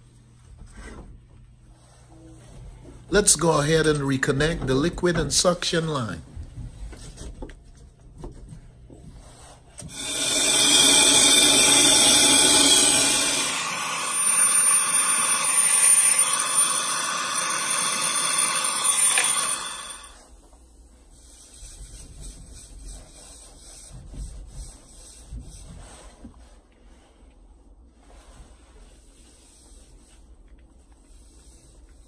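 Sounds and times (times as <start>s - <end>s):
torch flame hissing: 9.8s - 20.2s.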